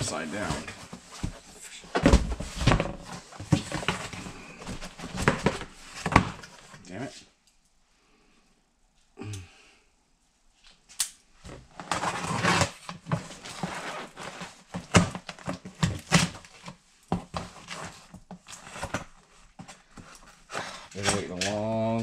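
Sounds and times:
cardboard box packing rustling: 0.0s - 6.8s, 11.5s - 22.0s.

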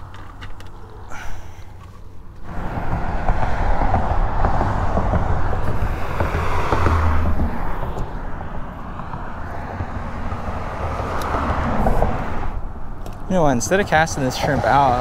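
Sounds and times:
road traffic passing: 0.0s - 15.0s
wind rushing over microphone: 2.5s - 15.0s.

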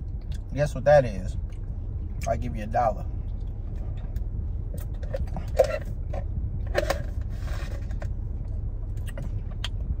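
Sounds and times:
low rumble inside a car: 0.0s - 10.0s.

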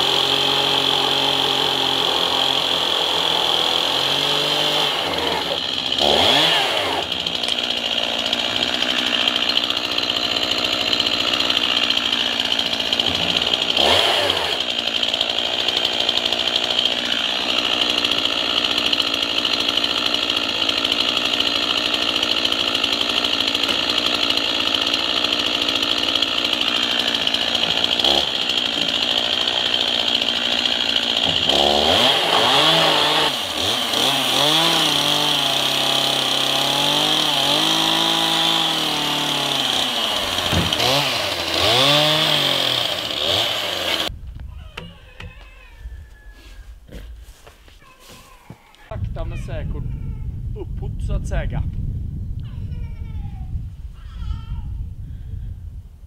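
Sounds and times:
chainsaw running and revving: 0.0s - 44.1s.

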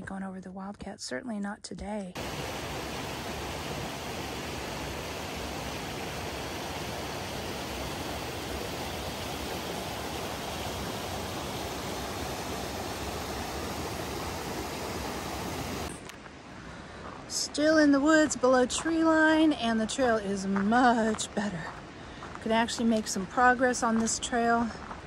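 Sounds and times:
stream rushing over boulders: 2.2s - 17.2s.

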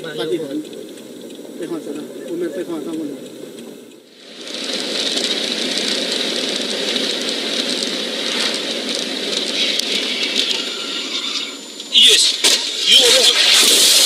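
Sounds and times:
road and wind noise in car: 0.0s - 10.6s.

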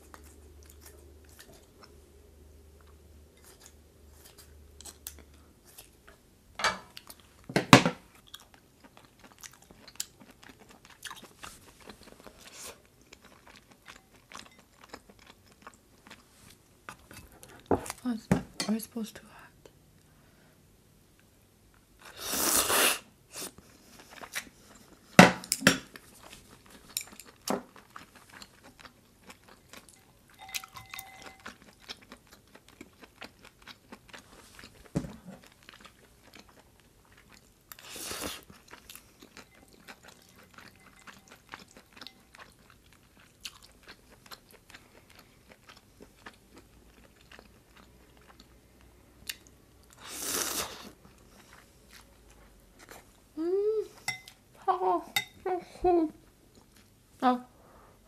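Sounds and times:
wet chewing and smacking: 8.1s - 16.3s, 25.9s - 50.0s.

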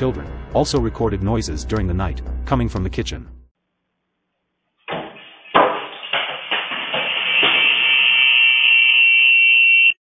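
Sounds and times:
sharp knocks in a kitchen: 4.9s - 7.8s
steady high-pitched whine: 6.6s - 10.0s.

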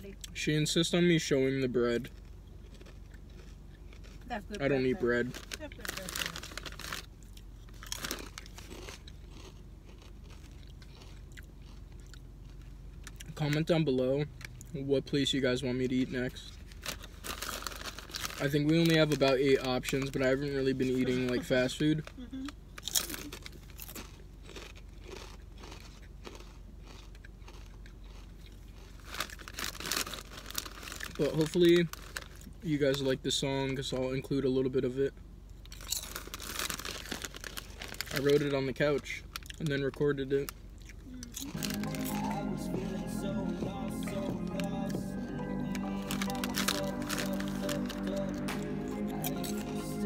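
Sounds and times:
potato chips crunching: 1.9s - 14.7s, 15.9s - 22.2s, 22.8s - 33.0s, 35.7s - 38.6s, 39.2s - 50.0s
chewing: 2.0s - 4.3s, 6.4s - 13.4s, 22.8s - 31.1s, 40.8s - 49.9s.

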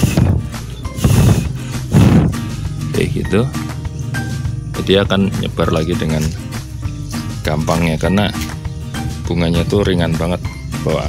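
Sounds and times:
breath puffs buffeting microphone: 0.0s - 2.9s
guitar music: 0.0s - 11.0s.

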